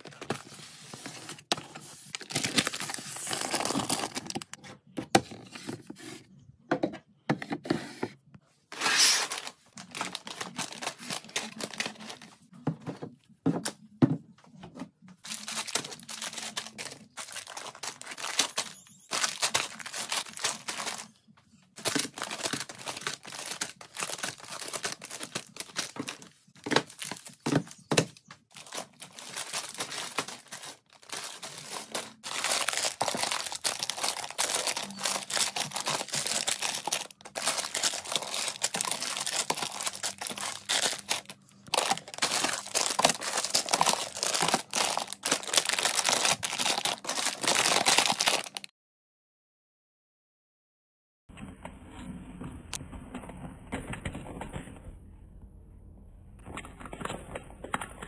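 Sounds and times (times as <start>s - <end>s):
plastic bags crinkling: 0.0s - 4.6s, 8.7s - 12.4s, 15.2s - 48.7s.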